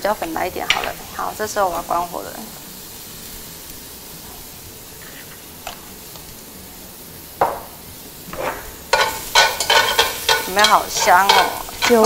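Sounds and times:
mushrooms sizzling in a wok: 0:00.0 - 0:12.0
utensil stirring and scraping wok: 0:08.2 - 0:12.0.

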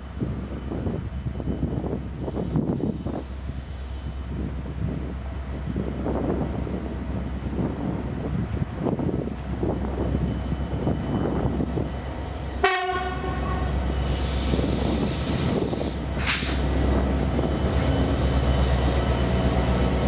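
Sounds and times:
diesel locomotive engine drone: 0:00.0 - 0:20.0
locomotive horn blast: 0:12.6 - 0:13.8
brief hiss: 0:14.1 - 0:16.6.

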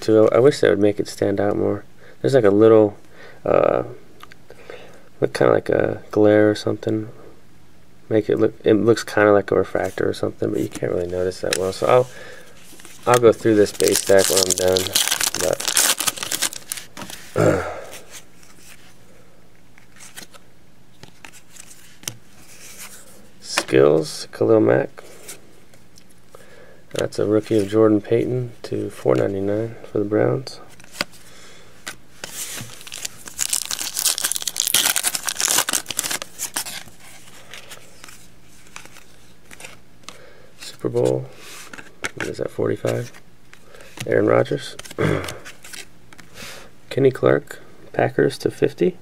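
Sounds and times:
foil wrapper crinkling: 0:13.0 - 0:17.0, 0:32.3 - 0:37.0.

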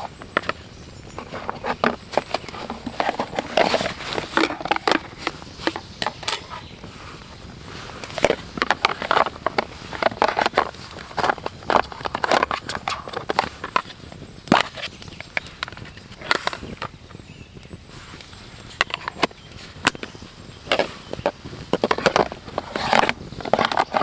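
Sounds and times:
camp cookware clacking: 0:00.0 - 0:06.9, 0:07.9 - 0:17.6, 0:18.2 - 0:24.0
wood fire crackling: 0:00.0 - 0:24.0.

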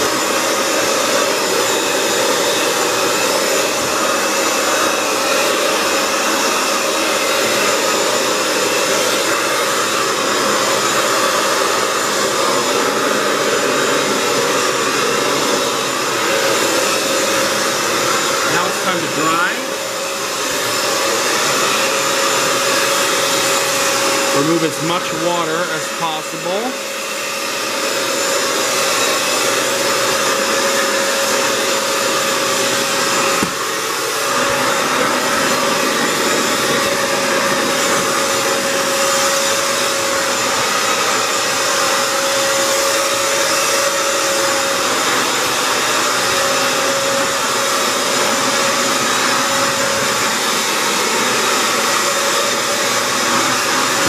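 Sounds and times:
floor cleaner suction motor whining: 0:00.0 - 0:54.0.

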